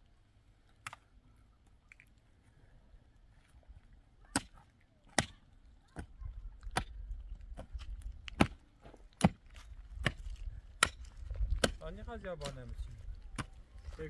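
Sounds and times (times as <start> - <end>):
pickaxe striking stony soil: 4.3 - 5.4, 6.0 - 13.6.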